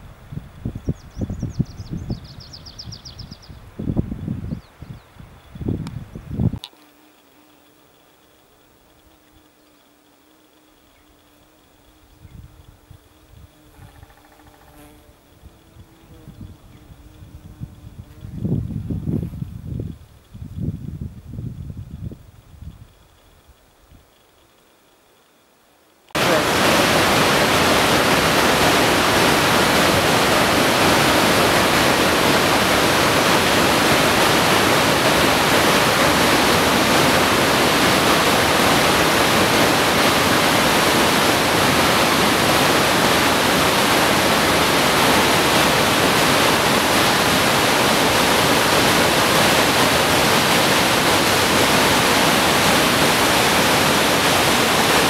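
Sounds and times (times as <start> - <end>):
waterfall rushing water: 26.1 - 55.0.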